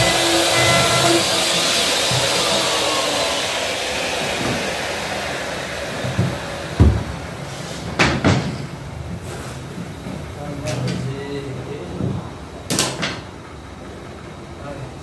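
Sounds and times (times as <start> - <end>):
electric router spinning down: 0.0 - 8.2
sharp knocks: 6.0 - 7.2.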